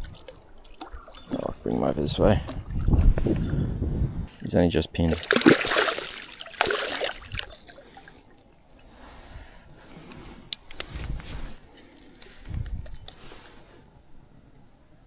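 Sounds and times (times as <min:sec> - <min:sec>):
wet squelches: 0:00.0 - 0:03.4, 0:05.1 - 0:08.9.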